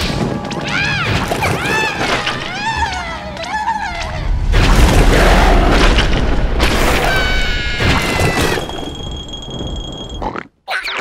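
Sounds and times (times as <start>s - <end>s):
crash: 4.2s - 10.1s
boom with low rumble: 4.3s - 8.2s.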